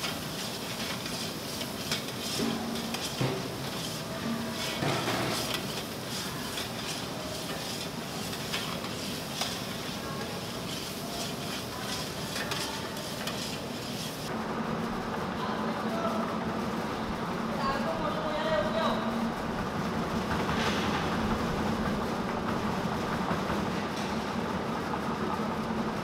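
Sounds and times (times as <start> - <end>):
spatula scraping steel pot: 0.0 - 14.3
vegetables sizzling: 0.0 - 14.3.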